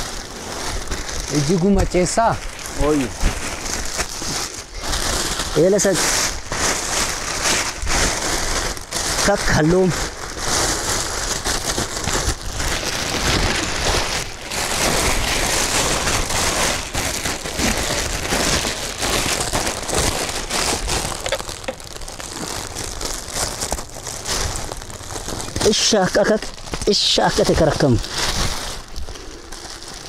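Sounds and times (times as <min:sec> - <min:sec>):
plastic bag of straw crinkling: 0:00.0 - 0:30.0.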